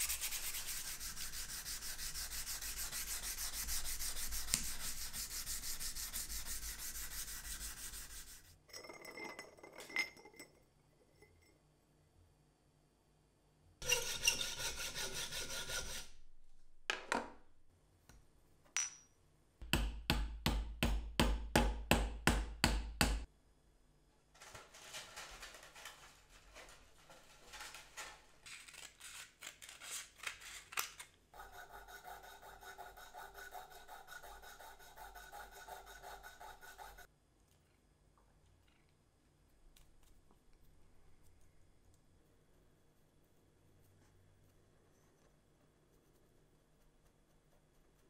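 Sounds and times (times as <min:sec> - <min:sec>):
hacksaw sawing metal tube: 0:13.8 - 0:16.2, 0:31.4 - 0:37.1.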